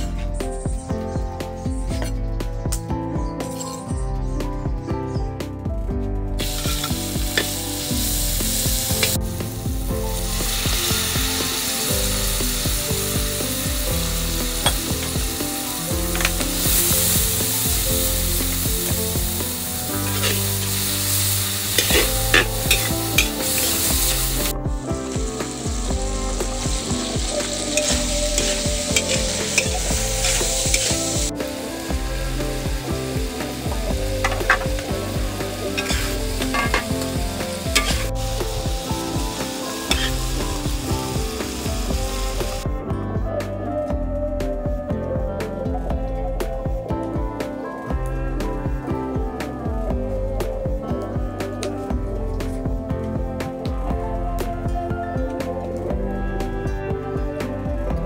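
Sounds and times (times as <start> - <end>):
stir-fry sizzling in oil: 6.4 - 42.6
metal spatula scraping wok: 19.9 - 24.5, 27.4 - 31.2, 35.7 - 37.2, 37.8 - 38.1, 39.9 - 40.2.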